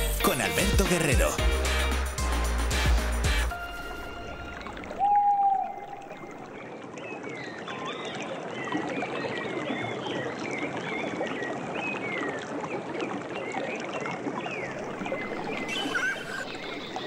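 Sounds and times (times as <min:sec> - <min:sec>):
river flowing: 0:00.6 - 0:07.0, 0:14.7 - 0:17.0
birds chirping and whistling: 0:04.8 - 0:06.5, 0:15.0 - 0:17.0.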